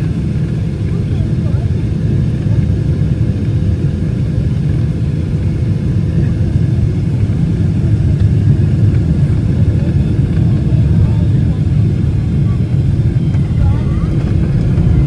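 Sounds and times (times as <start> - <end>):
jet engines and airflow rumbling: 0.0 - 15.0.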